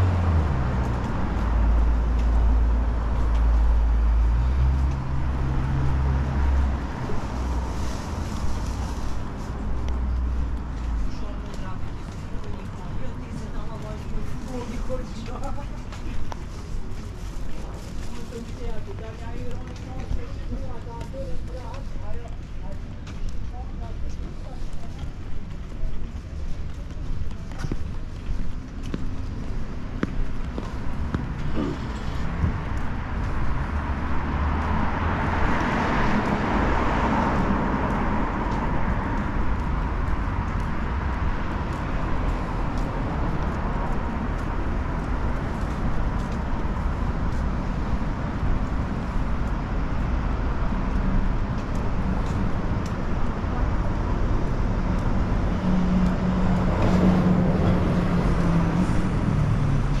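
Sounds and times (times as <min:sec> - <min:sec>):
vehicle passing: 0:00.0 - 0:13.4, 0:28.6 - 1:00.0
traffic rumble: 0:00.0 - 1:00.0.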